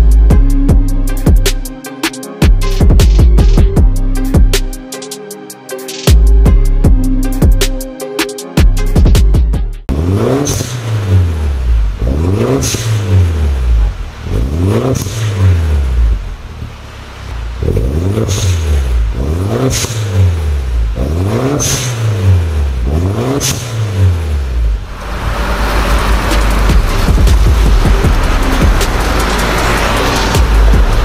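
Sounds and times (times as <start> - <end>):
car engine revving: 9.8 - 31.0.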